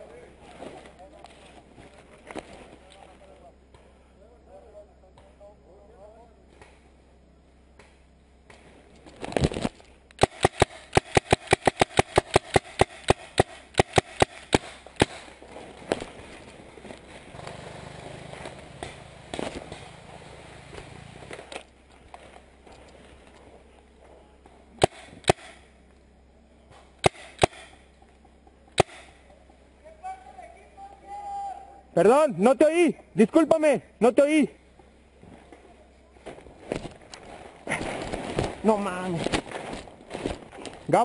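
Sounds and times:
paintball marker firing: 9.5s - 16.1s, 24.8s - 25.7s, 27.0s - 27.9s, 28.7s - 29.2s.

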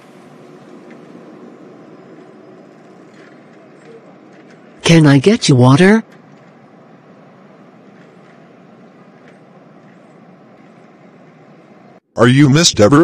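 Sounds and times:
hiss-like noise: 0.0s - 4.8s.

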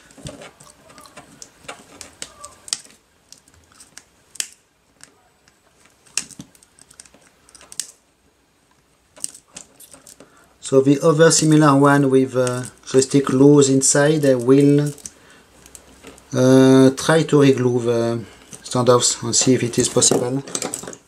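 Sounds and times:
light handling rustle: 0.0s - 4.1s, 8.7s - 10.4s, 12.3s - 16.4s, 17.0s - 21.0s.

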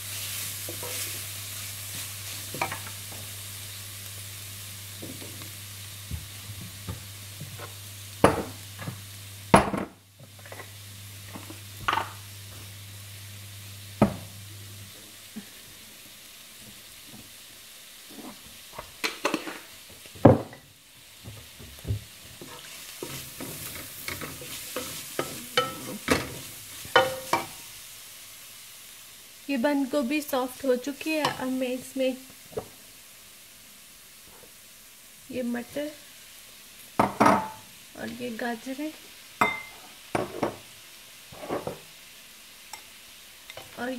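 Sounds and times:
cabbage sizzling in a pan: 0.0s - 43.9s
wooden spatula scraping a pan: 0.1s - 1.3s, 21.4s - 27.4s, 41.3s - 41.8s.

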